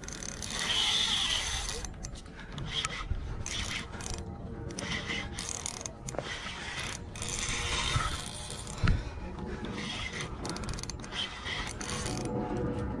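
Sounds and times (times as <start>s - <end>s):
fishing reel whirring and clicking: 0.0s - 12.5s.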